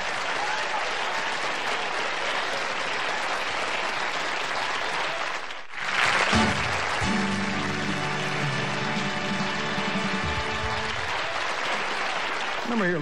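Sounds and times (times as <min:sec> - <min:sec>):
audience applauding: 0:00.0 - 0:13.0
music: 0:06.0 - 0:11.3.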